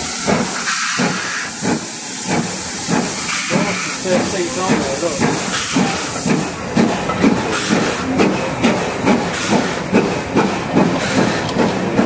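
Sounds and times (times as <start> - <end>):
train wheels clickety-clack: 0.0 - 12.0.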